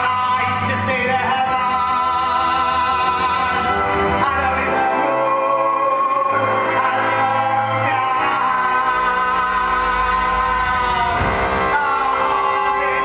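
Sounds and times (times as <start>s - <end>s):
orchestra playing: 0.0s - 13.0s
person singing with vibrato: 0.0s - 13.0s.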